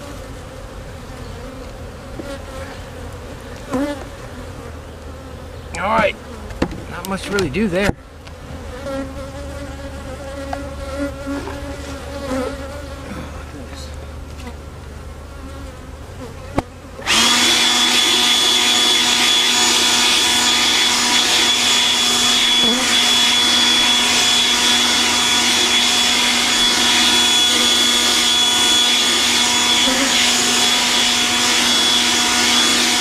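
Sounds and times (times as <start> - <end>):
honeybees buzzing: 0.0 - 33.0
blower running with high whine: 16.6 - 33.0.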